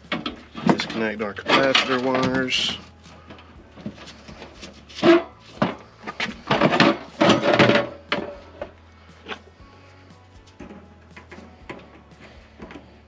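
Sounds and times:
metal clunks and scraping on plywood: 0.0 - 9.4.

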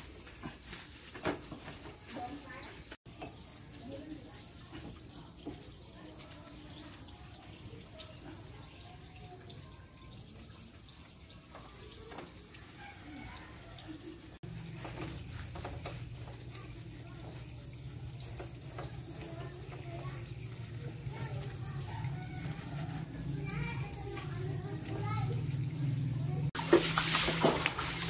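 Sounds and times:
water running from a tap: 0.0 - 28.0.

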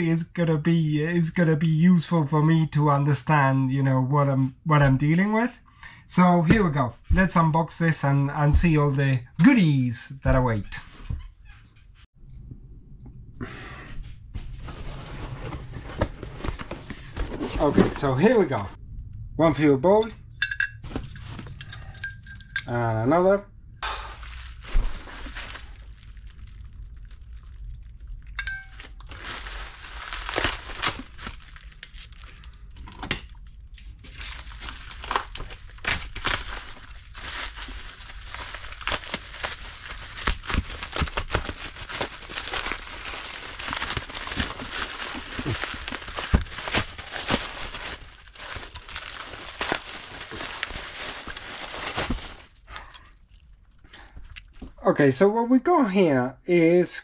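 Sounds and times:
bubble wrap crinkling: 23.9 - 53.8
packing tape tearing: 28.7 - 32.6, 34.1 - 52.5.

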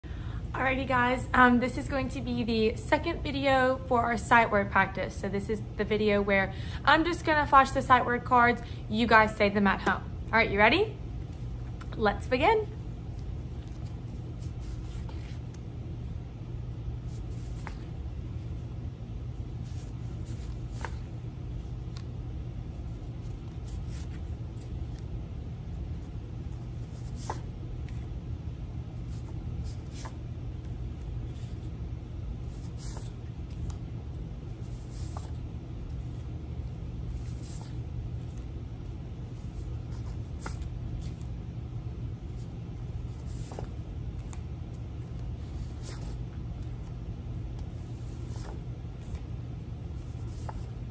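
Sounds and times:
low background hum: 0.0 - 50.9
paper cards rustling: 13.0 - 25.2, 25.8 - 28.1, 32.4 - 50.9.

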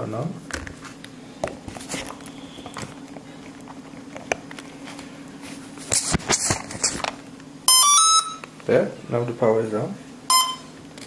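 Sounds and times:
steady low hum: 0.0 - 11.0
clicks and rustles of handling: 0.5 - 7.2.

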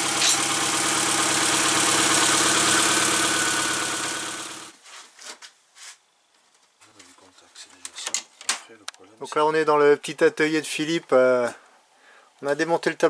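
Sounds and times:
car engine idling: 0.0 - 4.7.

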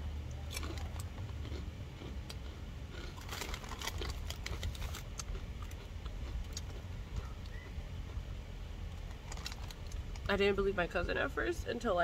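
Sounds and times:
steady low rumble: 0.0 - 12.0
chewing crunchy chips: 0.2 - 8.3, 8.9 - 10.3.

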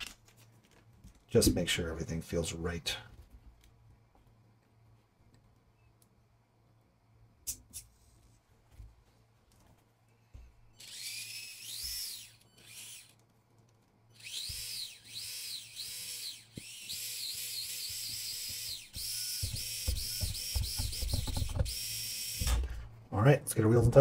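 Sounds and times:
small electric motor whining: 10.8 - 13.2, 14.1 - 22.7.

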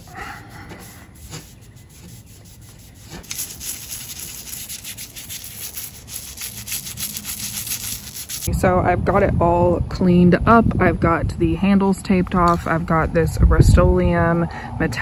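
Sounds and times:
cloth rubbing metal frame: 0.0 - 8.5
toothbrush scrubbing metal: 0.0 - 8.5.

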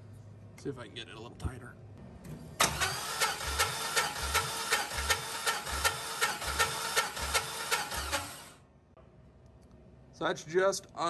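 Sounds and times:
starter motor cranking engine: 2.6 - 8.6.

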